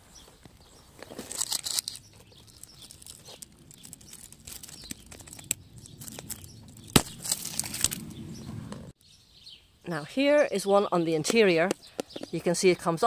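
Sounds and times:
branches rustling and crackling: 0:00.0 - 0:09.2
small twig clicks: 0:01.0 - 0:08.0
twig snapping: 0:01.2 - 0:08.1.

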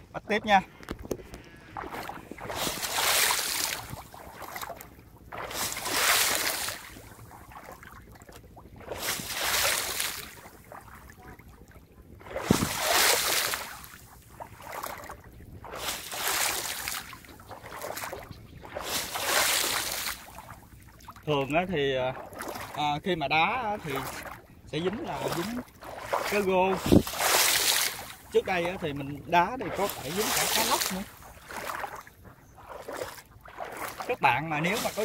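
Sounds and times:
shallow water kicked and splashed: 0:00.5 - 0:35.0.

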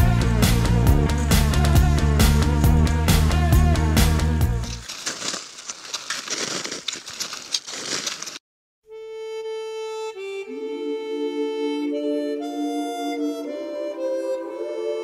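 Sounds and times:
harmonica playing held notes: 0:08.9 - 0:15.0.

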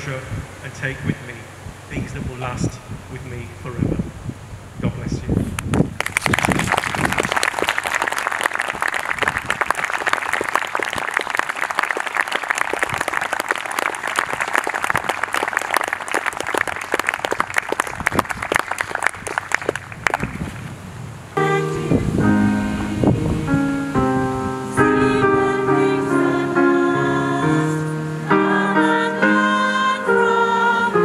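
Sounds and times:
congregation applauding: 0:06.0 - 0:20.5.

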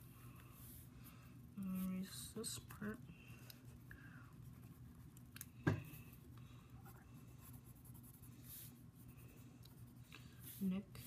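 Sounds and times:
pencil scratching on paper: 0:06.9 - 0:11.0.

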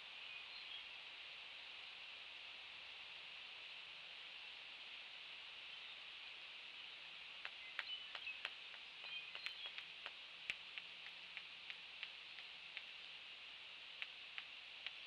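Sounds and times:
steady high hiss: 0:00.0 - 0:15.0
sharp clicks: 0:07.4 - 0:13.0, 0:13.9 - 0:15.0.

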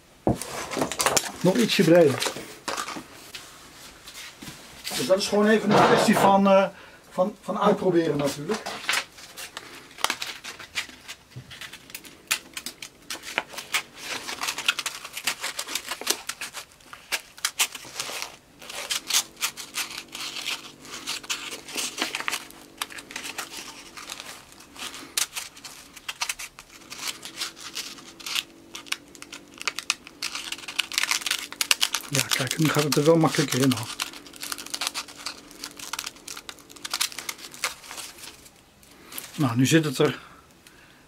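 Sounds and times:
sandpaper rustling and scratching: 0:08.2 - 0:38.5.

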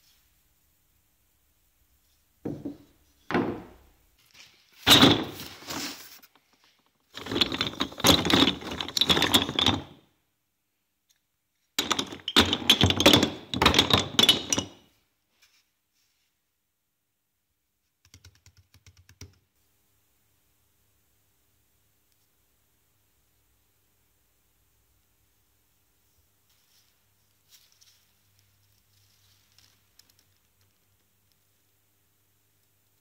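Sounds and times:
knocks: 0:02.4 - 0:03.8
wooden spindles clattering: 0:04.9 - 0:10.0, 0:11.8 - 0:14.8.

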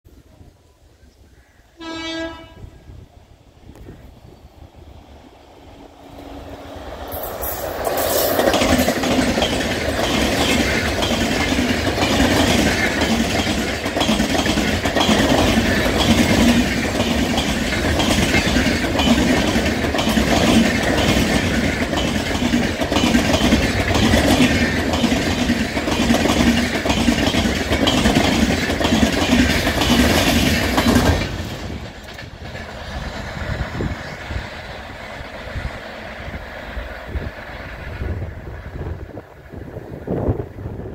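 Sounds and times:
train rumbling: 0:01.7 - 0:40.9
train wheels clattering over rail joints: 0:06.9 - 0:37.8.

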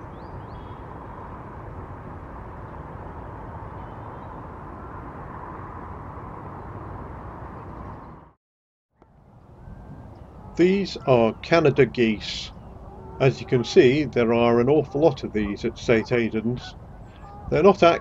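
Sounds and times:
outdoor hiss and low rumble: 0:09.1 - 0:18.0.

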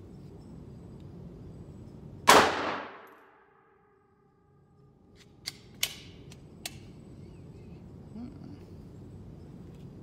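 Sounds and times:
pistol shot ringing: 0:02.2 - 0:03.6
pistol metallic clicks: 0:05.1 - 0:06.9.

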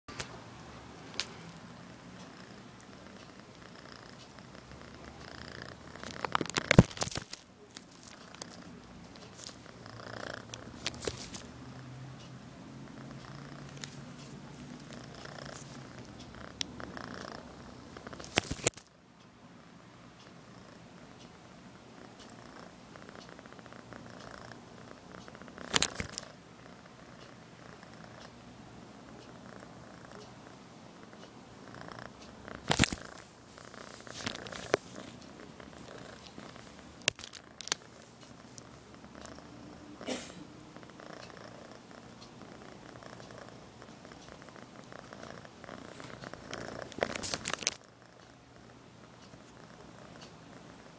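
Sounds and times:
kitten purring: 0:01.1 - 0:12.1, 0:12.7 - 0:18.9, 0:20.2 - 0:28.4, 0:29.0 - 0:50.9
bubble wrap crackling: 0:06.2 - 0:08.2, 0:37.1 - 0:37.8, 0:46.9 - 0:47.8.

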